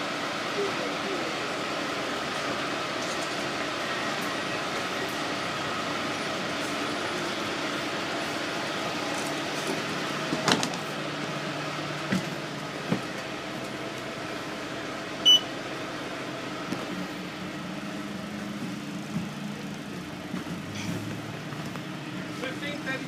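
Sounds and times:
bus engine idling: 0.0s - 23.0s
short electronic beep: 15.2s - 15.5s.

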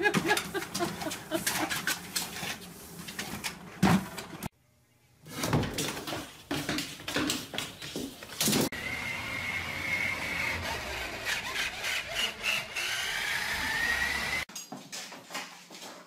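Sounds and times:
toy electric motor whining: 8.7s - 14.5s.

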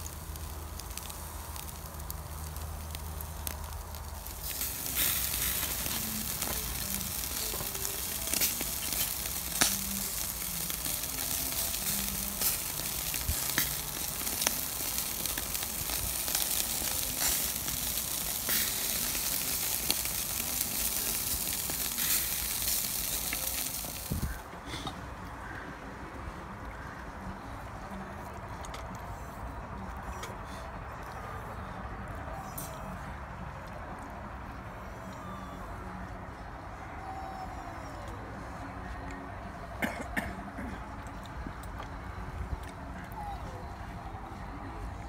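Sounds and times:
meat sizzling on a grill: 0.0s - 24.4s
fat crackling and popping: 0.0s - 24.5s.

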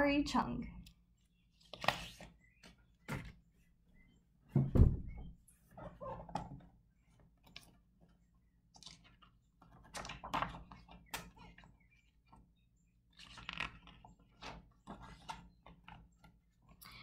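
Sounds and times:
book pages turning: 1.5s - 3.4s, 7.4s - 12.4s, 13.1s - 16.8s.

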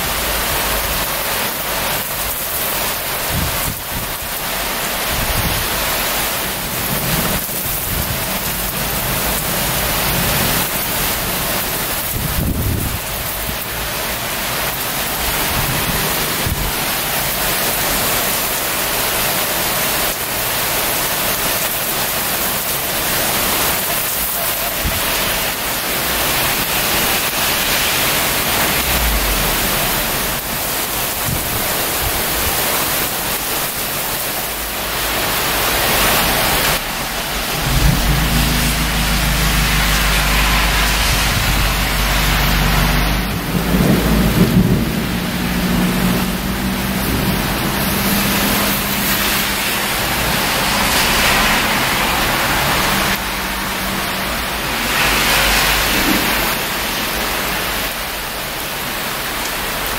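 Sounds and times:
heavy rain pouring: 0.0s - 59.9s
deep thunder rumbles: 24.8s - 32.4s, 36.5s - 48.6s.

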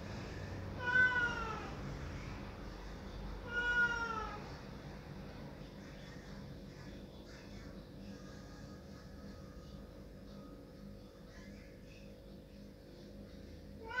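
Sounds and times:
cat meowing: 0.8s - 1.7s, 3.4s - 4.5s, 13.8s - 14.0s.

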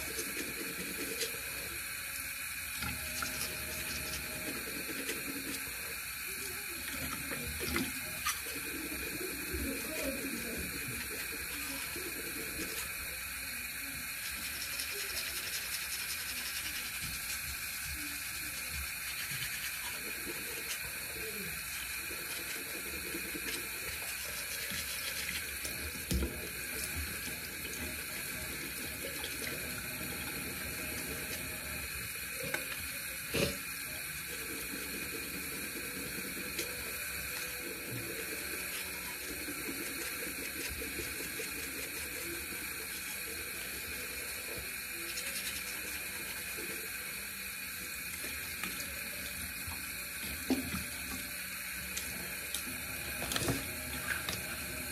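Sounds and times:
tap water running into sink: 2.6s - 33.4s, 47.6s - 54.9s.

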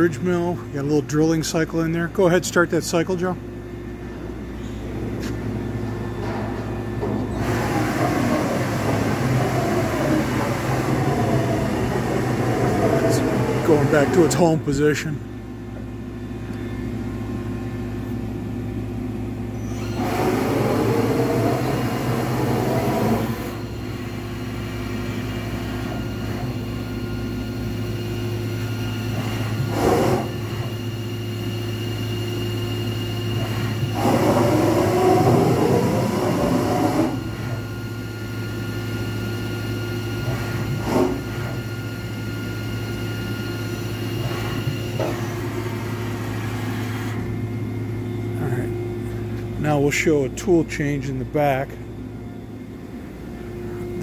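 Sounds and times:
loud machine whirring: 0.0s - 54.0s
milling machine humming: 0.0s - 54.0s.

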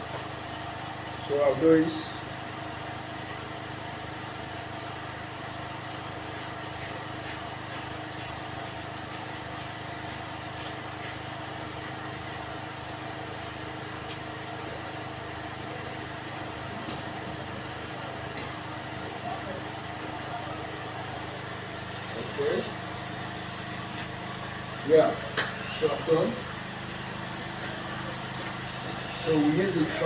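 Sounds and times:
steady machine hum: 0.0s - 30.0s.

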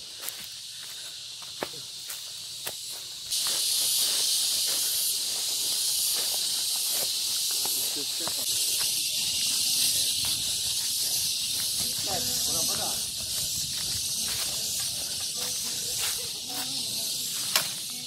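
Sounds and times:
footsteps on dry leaves: 0.0s - 18.0s
high-pitched insect chorus: 0.0s - 18.0s.

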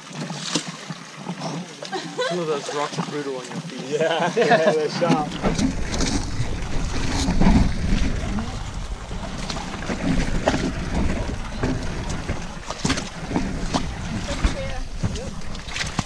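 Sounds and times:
muddy water sloshing: 0.0s - 16.0s
wind and handling rumble: 5.0s - 16.0s.

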